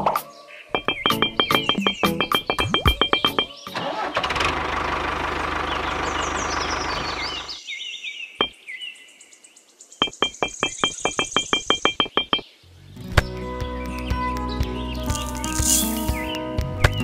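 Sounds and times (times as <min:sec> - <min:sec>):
background music: 0:00.0 - 0:03.9, 0:12.9 - 0:17.0
toy motor and gears whirring: 0:15.1 - 0:16.2.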